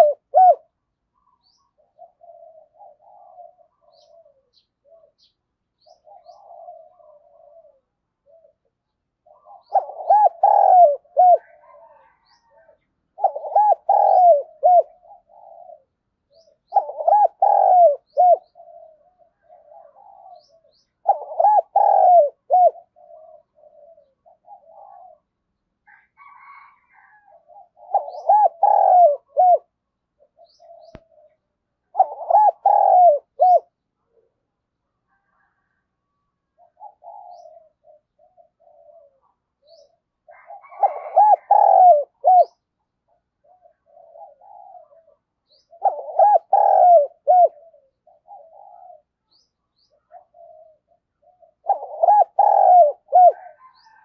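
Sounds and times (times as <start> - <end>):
dove cooing: 0.0 - 54.0.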